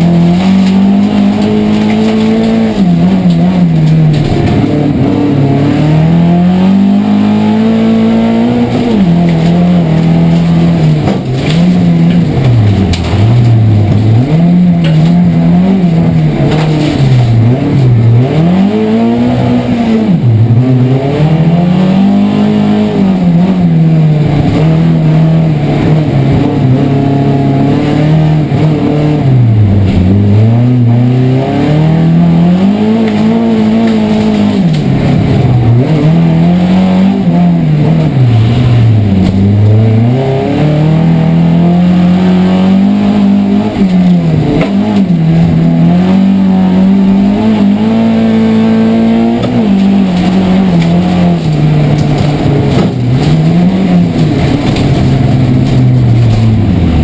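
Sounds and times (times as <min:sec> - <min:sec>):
car engine revving hard: 0:00.0 - 0:57.0.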